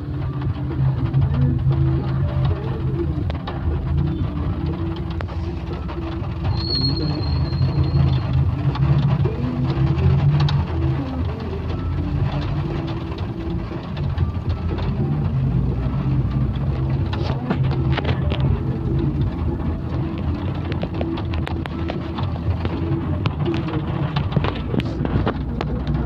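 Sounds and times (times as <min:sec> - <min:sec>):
road noise: 0:00.0 - 0:26.0
vehicle engine rumble: 0:00.0 - 0:26.0
thin high squeal: 0:06.5 - 0:08.2.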